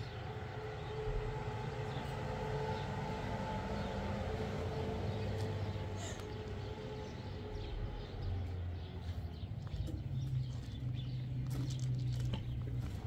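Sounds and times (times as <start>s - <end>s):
low drone: 0.0s - 9.4s
footsteps on gravel: 7.6s - 13.0s.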